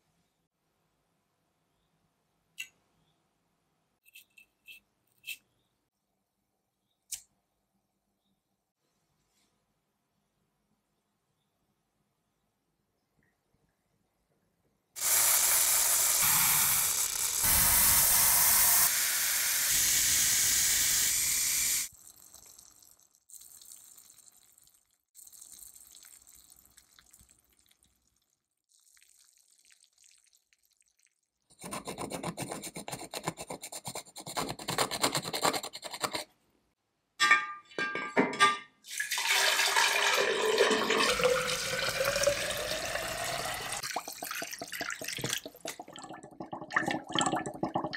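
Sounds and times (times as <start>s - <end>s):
aerosol can spraying hiss: 15.0s - 21.9s
faint fizzing and crackling: 21.8s - 31.5s, 41.1s - 47.9s
water poured into glass vessel: 21.9s - 31.3s, 38.9s - 47.9s.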